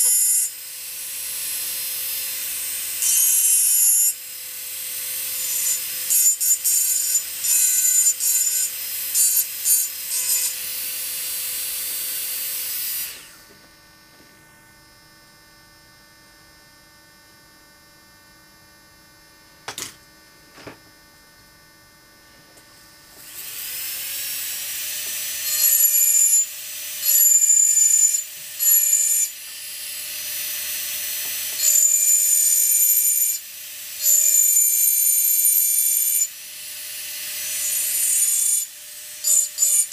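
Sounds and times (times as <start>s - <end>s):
rotary engraving tool grinding glass: 0.0s - 13.4s, 23.2s - 39.9s.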